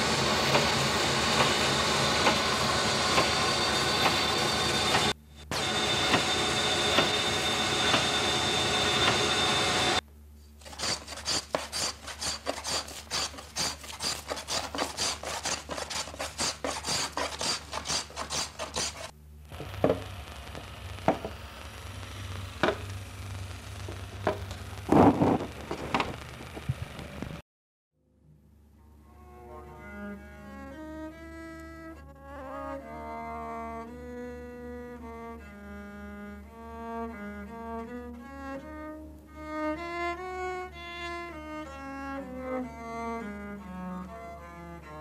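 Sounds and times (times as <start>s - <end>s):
steady machine whir: 0.0s - 10.0s, 16.2s - 27.4s
hand tool shaving wood: 10.6s - 19.1s.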